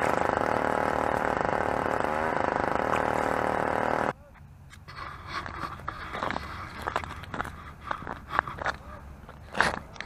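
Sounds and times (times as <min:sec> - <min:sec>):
engine running: 0:00.0 - 0:04.2.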